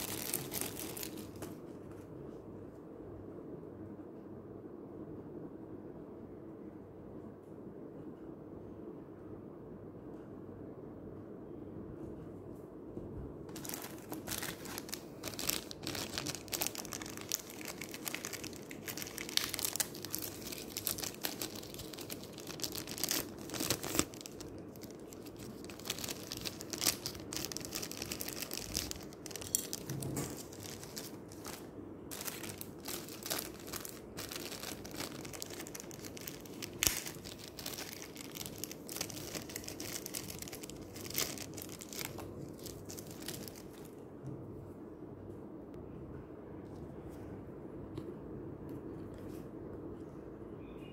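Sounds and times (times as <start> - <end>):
plastic bags crinkling: 0.0 - 1.6, 13.5 - 44.0
plastic tearing: 0.0 - 1.6, 13.5 - 43.9.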